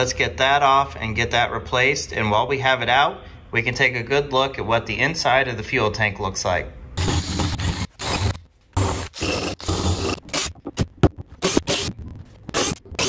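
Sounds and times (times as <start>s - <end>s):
drill wire brush on metal: 7.0s - 10.8s, 11.4s - 13.0s
screwdriver scrapes and clicks: 7.0s - 13.0s.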